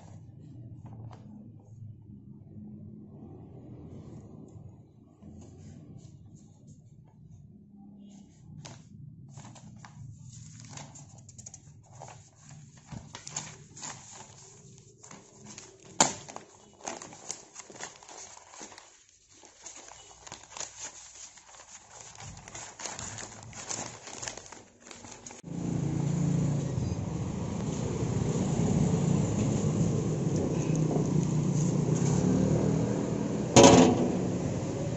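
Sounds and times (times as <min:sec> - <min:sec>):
paper rustling and crackling: 0:08.1 - 0:25.5, 0:27.4 - 0:32.6
paper snap: 0:15.5 - 0:18.9
low rumbling noise: 0:25.4 - 0:34.9.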